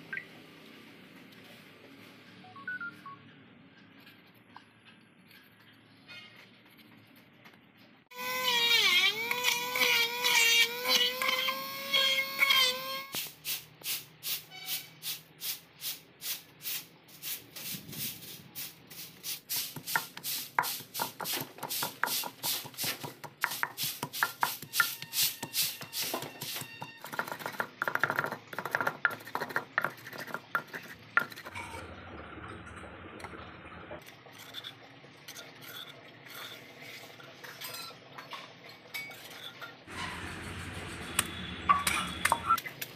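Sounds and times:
wooden pestle pounding in clay pot: 19.8s - 31.5s.

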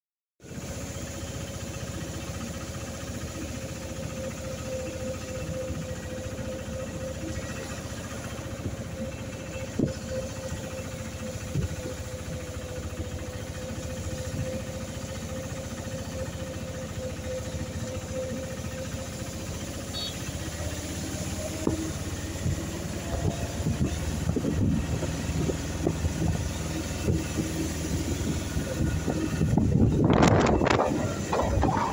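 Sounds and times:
auto-rickshaw engine running: 0.4s - 31.9s.

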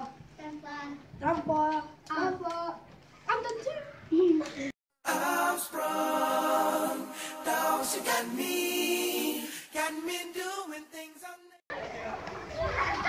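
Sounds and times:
voices singing long held notes: 5.0s - 11.4s.

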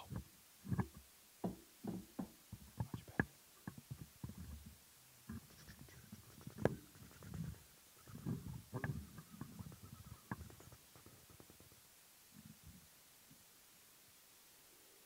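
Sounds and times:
sharp microphone clicks: 5.3s - 11.8s.

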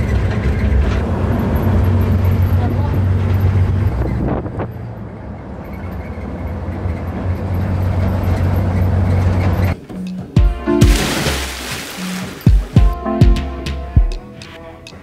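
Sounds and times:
car engine and road rumble: 0.0s - 10.6s.

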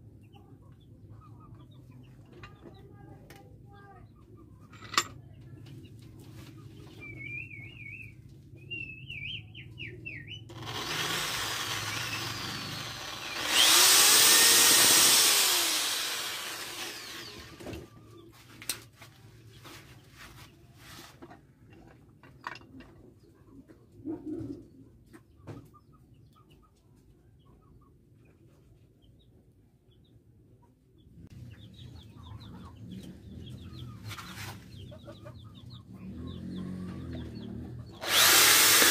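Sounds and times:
tools tapping on metal: 4.7s - 5.2s
cordless power drill running: 10.5s - 17.8s, 38.0s - 38.9s
birds chirping: 30.9s - 38.9s.

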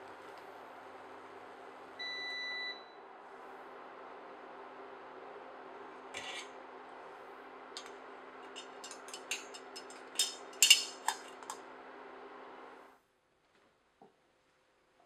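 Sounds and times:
steady hum: 2.8s - 13.0s.

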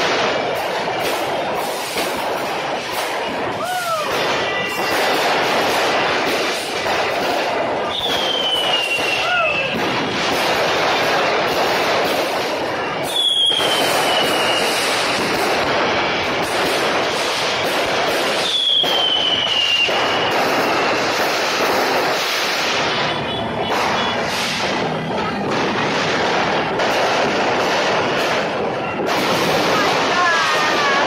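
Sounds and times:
fireworks crackling and banging: 0.0s - 31.0s
firework whistles falling in pitch: 7.9s - 9.8s, 13.1s - 15.0s, 18.3s - 20.4s.

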